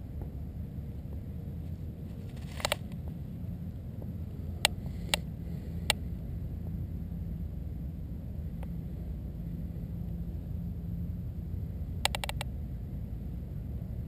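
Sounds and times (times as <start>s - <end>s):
steady low rumble: 0.0s - 14.0s
sharp clicks: 12.0s - 12.5s.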